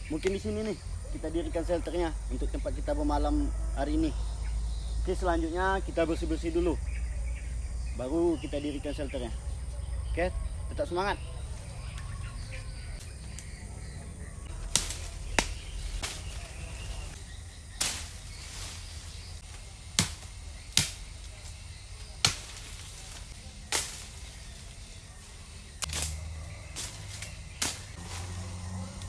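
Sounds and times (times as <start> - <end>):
machete chopping undergrowth: 14.5 - 24.9, 25.8 - 29.0.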